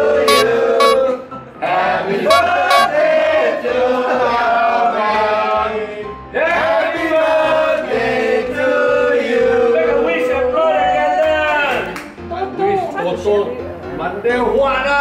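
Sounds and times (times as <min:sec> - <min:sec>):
group singing: 0:00.0 - 0:10.5.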